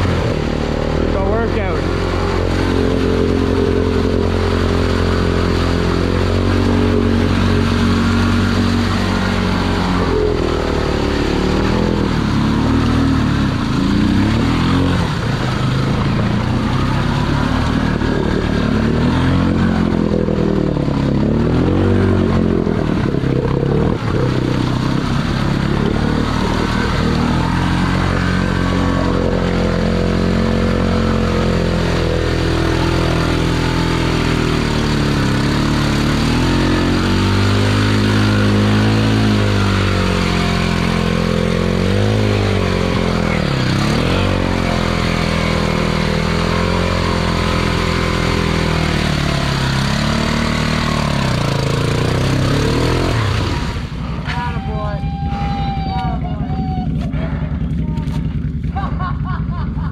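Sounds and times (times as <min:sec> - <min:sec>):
atv engine revving: 0:00.0 - 0:59.9
tires spinning in mud: 0:00.0 - 0:59.9.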